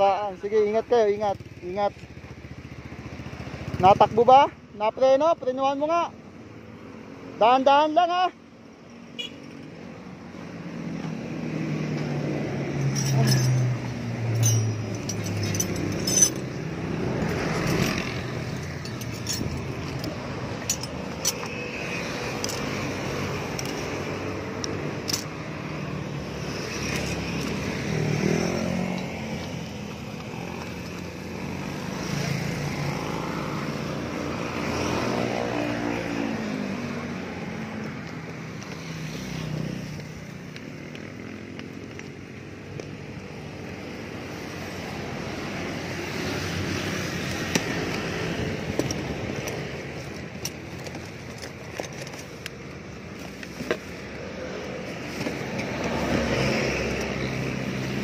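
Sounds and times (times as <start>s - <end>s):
vehicles passing on road: 0.0s - 58.0s
metal hand tools clinking: 12.7s - 25.4s, 47.3s - 52.6s.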